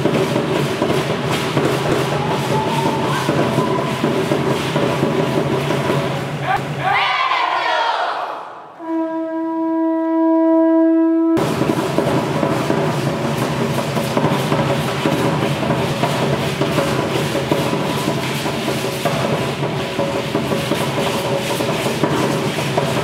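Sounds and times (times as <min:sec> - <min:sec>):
drums playing driving rhythm: 0:00.0 - 0:06.7, 0:11.4 - 0:23.0
conch shell trumpet note: 0:08.8 - 0:11.4.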